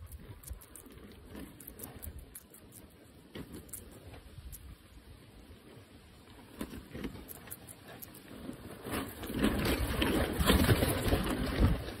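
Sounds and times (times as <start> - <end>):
guinea pig munching: 0.0 - 11.8.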